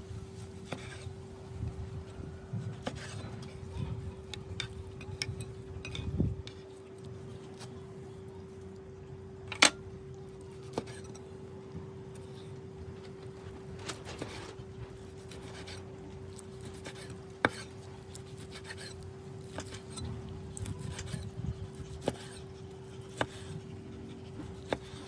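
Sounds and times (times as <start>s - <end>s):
knife slicing steak: 10.6s - 11.1s, 15.1s - 25.0s.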